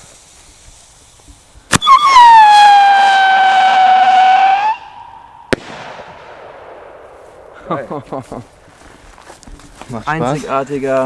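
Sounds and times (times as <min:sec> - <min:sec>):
firework shell screaming whistle: 0:01.7 - 0:06.1
firework launch bang: 0:01.7 - 0:07.8.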